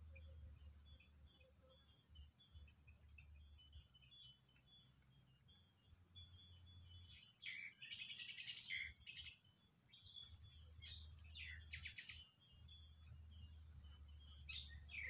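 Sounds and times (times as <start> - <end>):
wild bird calls: 6.2 - 12.4, 14.2 - 15.0.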